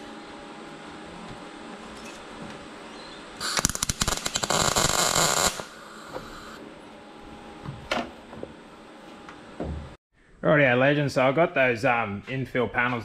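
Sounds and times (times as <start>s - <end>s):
welding arc crackling: 3.4s - 6.6s.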